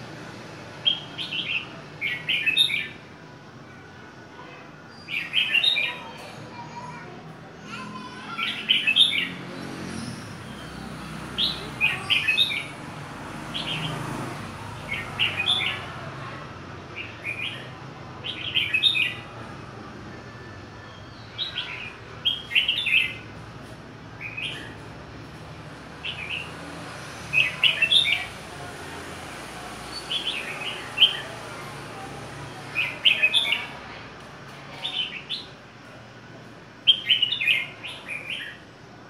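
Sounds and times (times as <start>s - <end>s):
bird singing bright phrases: 0.8s - 3.0s, 4.9s - 6.8s, 7.8s - 12.8s, 17.0s - 19.3s, 20.8s - 23.4s, 36.8s - 38.6s.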